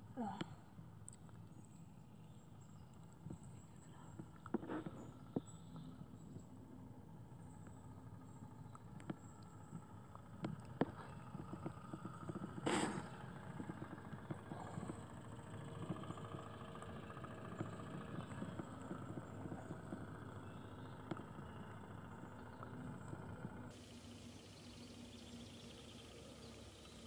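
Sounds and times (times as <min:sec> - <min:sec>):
model steam engine chuffing: 0:10.9 - 0:27.0.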